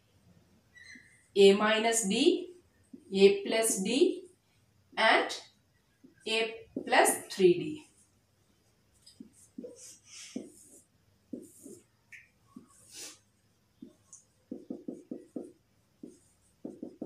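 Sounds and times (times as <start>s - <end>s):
marker squeaking on whiteboard: 0.7s - 1.3s, 9.1s - 13.2s, 13.8s - 17.0s.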